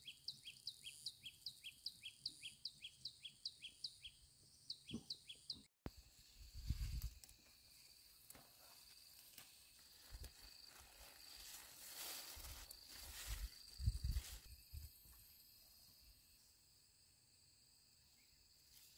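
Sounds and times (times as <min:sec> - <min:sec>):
leaves and vines rustling: 0:06.1 - 0:15.3
insects trilling: 0:06.2 - 0:18.9.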